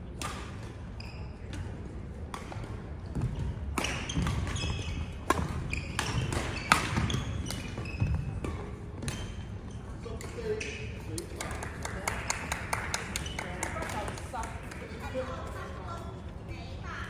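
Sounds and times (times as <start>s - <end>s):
racket hitting shuttlecock: 0.2s - 0.7s, 2.3s - 7.7s
shoes squeaking on court floor: 0.9s - 1.8s, 2.6s - 11.2s.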